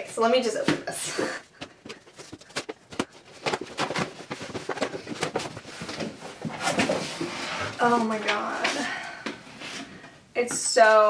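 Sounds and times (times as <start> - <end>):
cardboard box crackling and rustling: 1.6 - 7.3.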